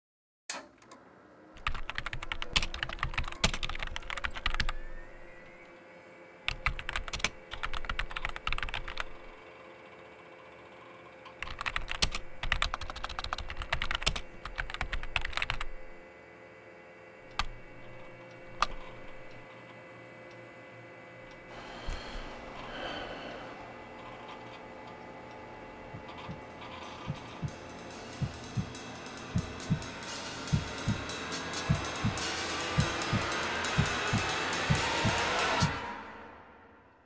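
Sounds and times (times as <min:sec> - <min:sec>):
faint steady hum: 0:01.3 - 0:36.6
keyboard typing: 0:01.6 - 0:04.9, 0:06.5 - 0:09.3, 0:11.3 - 0:15.9, 0:18.6 - 0:19.4, 0:26.0 - 0:27.6, 0:28.2 - 0:28.7, 0:29.3 - 0:29.8, 0:30.5 - 0:35.7.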